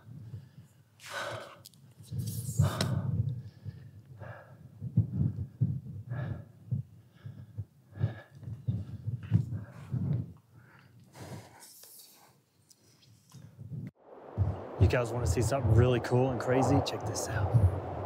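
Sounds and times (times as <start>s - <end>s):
person breathing hard: 0.0s - 12.4s
low thumps: 13.7s - 18.0s.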